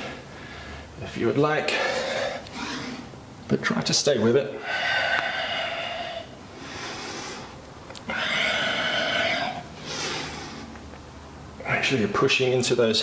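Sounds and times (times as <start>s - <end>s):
man breathing heavily: 0.0s - 1.0s, 1.6s - 3.2s, 4.5s - 10.9s.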